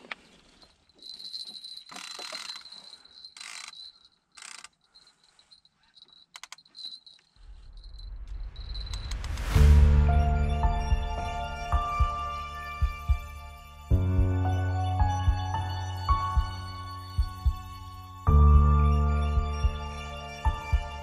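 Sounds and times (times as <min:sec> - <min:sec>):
fishing gear rustling and clattering: 0:00.0 - 0:08.0
reel clicks: 0:01.8 - 0:04.9
background music: 0:09.1 - 0:21.0.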